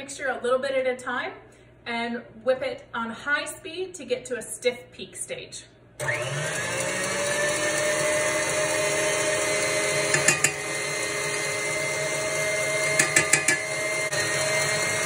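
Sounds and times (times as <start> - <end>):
stand mixer motor whining: 6.0 - 15.0.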